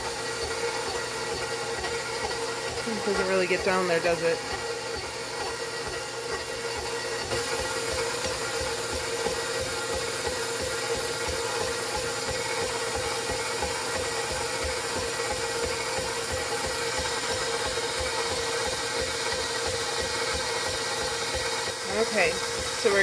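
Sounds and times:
stand mixer running: 0.0 - 23.0.

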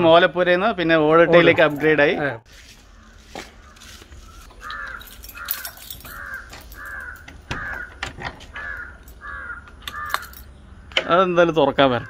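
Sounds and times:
crow cawing: 2.9 - 10.4
metal door chain clinking: 4.5 - 10.5.

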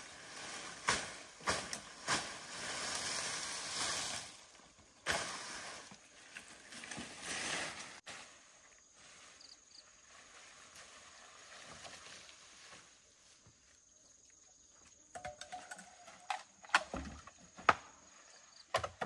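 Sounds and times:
dry brush rustling and crackling: 0.0 - 14.0
faint outdoor background: 0.0 - 19.0.

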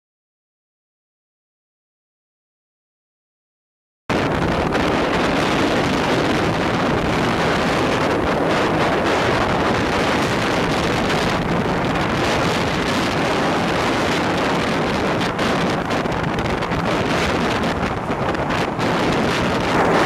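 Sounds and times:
speedboat engine: 4.1 - 20.0
water rushing past hull: 4.1 - 20.0
wind buffeting microphone: 4.1 - 20.0.

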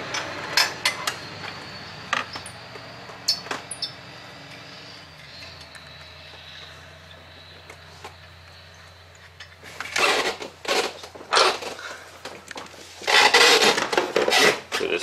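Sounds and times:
metal scraping and clanking: 9.7 - 11.9, 12.8 - 14.8.

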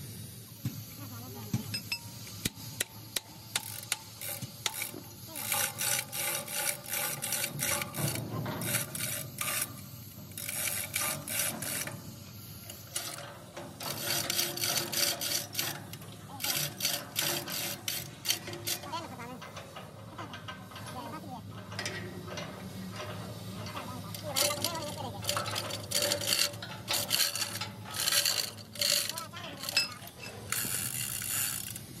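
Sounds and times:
chain clattering through hoist: 3.5 - 32.0
sharp metallic clinks: 10.6 - 31.2.

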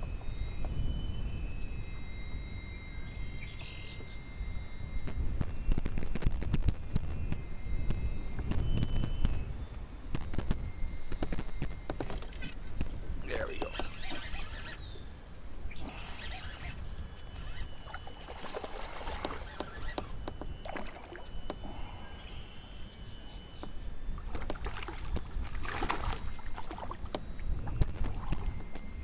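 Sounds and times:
wind rumbling on microphone: 0.0 - 29.0
fishing reel clicks: 12.3 - 15.0, 15.8 - 18.3
water lapping against hull: 13.5 - 14.8, 15.7 - 22.0, 24.2 - 28.7.

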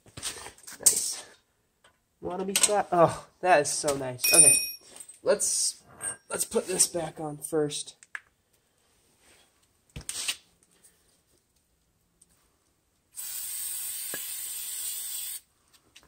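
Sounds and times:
aerosol spray hissing: 13.2 - 15.4.

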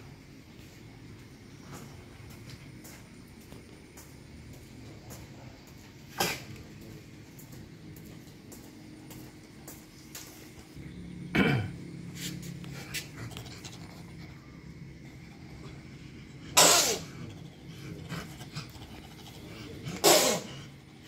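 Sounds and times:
civet hissing calls: 11.2 - 21.0.

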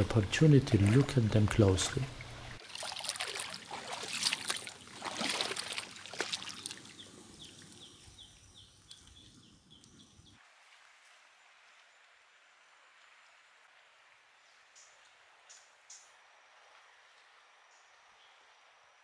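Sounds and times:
dog wading through water: 0.6 - 7.9.

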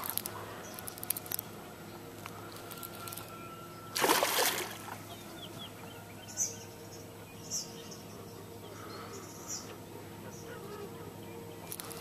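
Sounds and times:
faint low hum: 0.0 - 12.0
small birds chirping: 5.0 - 12.0.

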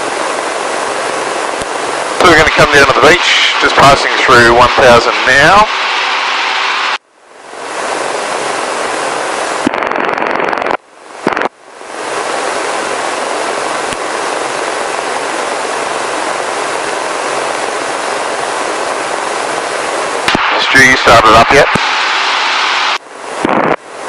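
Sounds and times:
helicopter engine and rotors: 0.0 - 7.0, 12.0 - 24.0.

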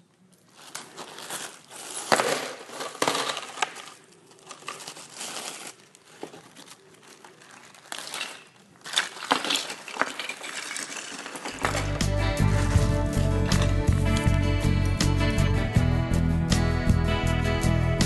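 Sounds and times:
plastic bags crinkling: 0.3 - 13.8.

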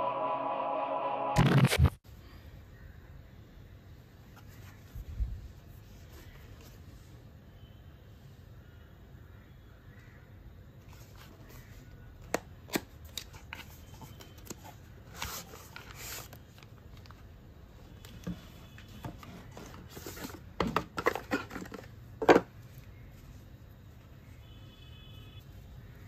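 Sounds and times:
paper rustling: 13.1 - 17.3.

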